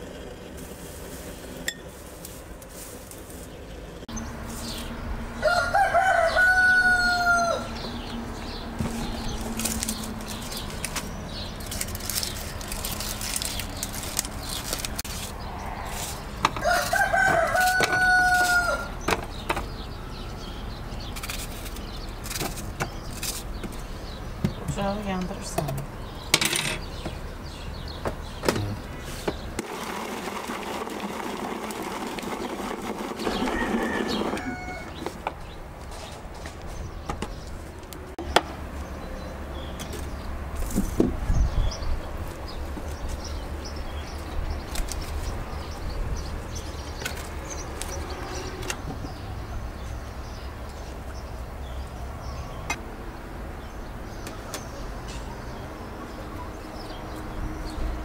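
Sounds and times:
rustling and scraping: 0.4 - 3.8, 4.4 - 5.0, 8.8 - 19.8, 21.0 - 23.9, 28.4 - 38.9, 39.8 - 41.4.

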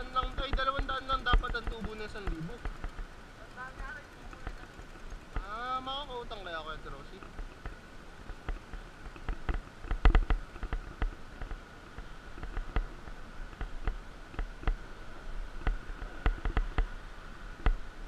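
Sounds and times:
mountain bike rattling and knocking: 0.0 - 13.0
steady high hum: 0.0 - 18.0.

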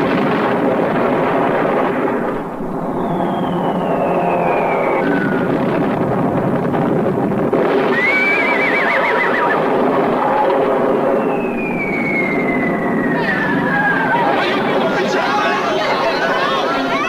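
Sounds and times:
long falling whistle: 2.7 - 5.6, 7.9 - 9.6, 10.2 - 14.2
horse whinnying: 8.0 - 9.6.

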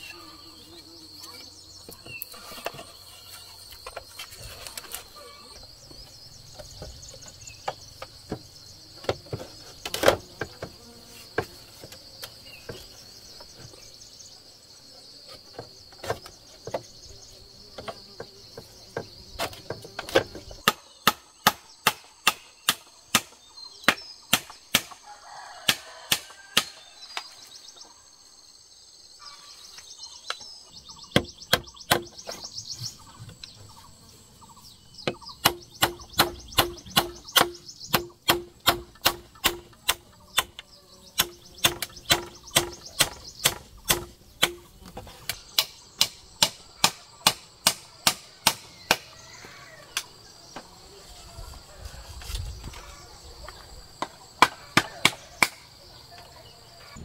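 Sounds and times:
insects chirping: 0.0 - 57.0
hand tool striking wood: 17.8 - 25.0, 25.7 - 27.3, 31.1 - 32.4, 35.0 - 49.1, 54.0 - 55.6.

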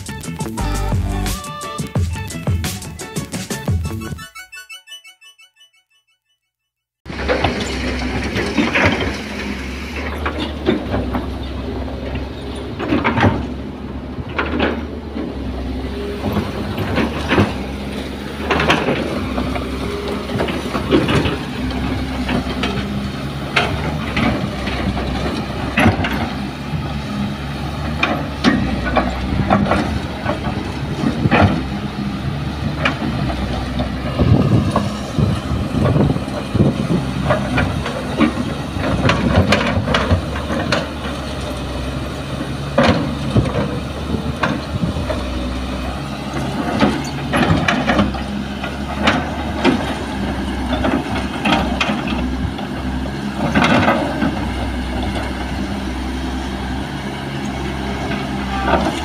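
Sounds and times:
excavator diesel engine running: 0.0 - 4.3, 7.1 - 59.0
machine clanks and knocks: 7.1 - 26.9, 27.8 - 31.8, 32.7 - 45.4, 46.0 - 55.7.

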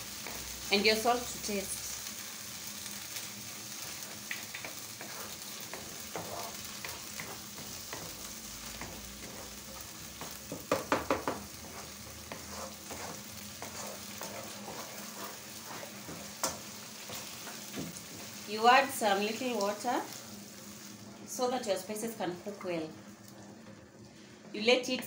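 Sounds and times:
sauce sizzling in a pan: 0.0 - 25.0
wooden spoon scraping a pan: 3.8 - 18.5
spoon knocking against pan: 10.2 - 12.5.

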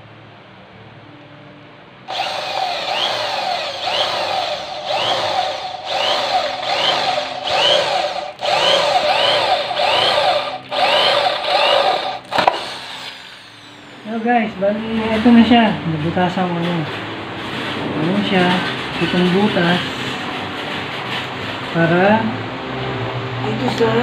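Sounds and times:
electric drill boring plywood: 2.1 - 14.2.

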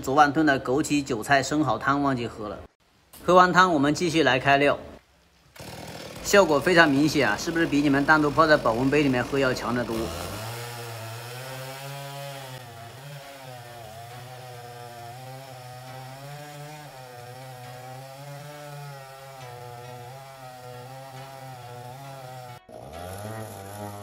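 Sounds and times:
chainsaw cutting log: 5.6 - 24.0.

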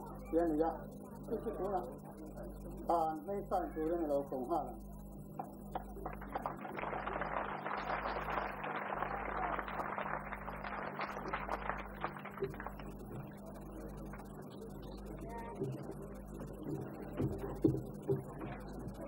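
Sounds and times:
steady electrical hum: 0.0 - 19.0
crowd applause: 5.4 - 14.8.

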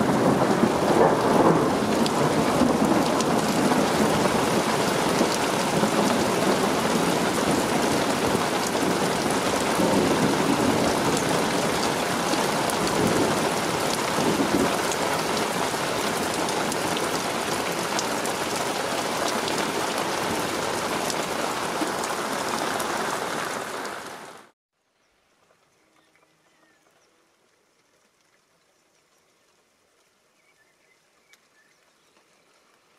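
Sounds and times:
thunder rumble: 0.0 - 17.0
heavy rain falling: 0.0 - 24.6.

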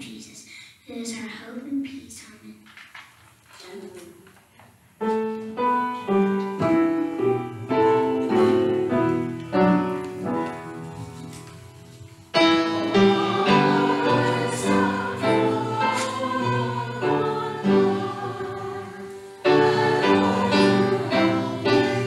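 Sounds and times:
piano playing chords: 5.0 - 22.0
choir singing: 12.3 - 22.0.

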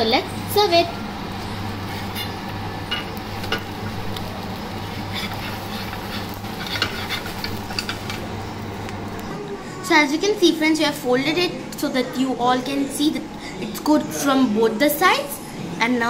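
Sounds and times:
omelette sizzling in pan: 0.0 - 9.3
spatula scraping and tapping pan: 5.0 - 8.2.

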